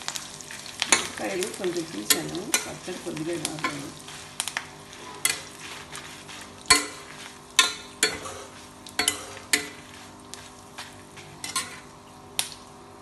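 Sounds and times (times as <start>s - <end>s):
faint frying sizzle: 0.0s - 13.0s
spatula scraping iron pan: 4.9s - 11.9s.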